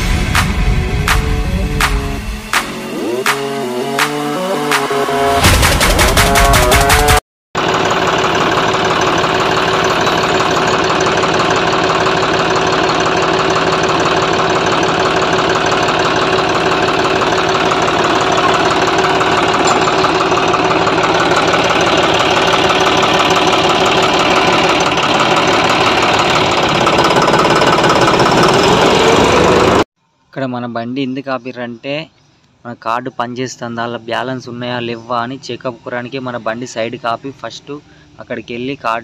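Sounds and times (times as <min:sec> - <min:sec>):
diesel tractor engine running: 0:00.0 - 0:29.9.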